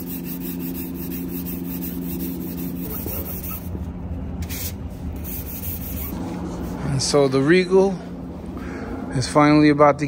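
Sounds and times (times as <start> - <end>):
sanding sponge rubbing: 0.0 - 3.8, 4.4 - 6.8.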